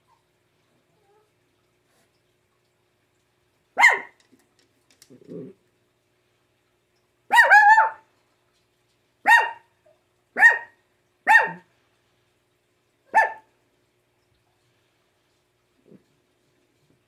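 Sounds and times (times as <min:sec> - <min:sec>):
small dog barking: 0:03.8 - 0:04.2, 0:07.3 - 0:08.1, 0:09.2 - 0:09.7, 0:10.4 - 0:11.7, 0:13.1 - 0:13.5.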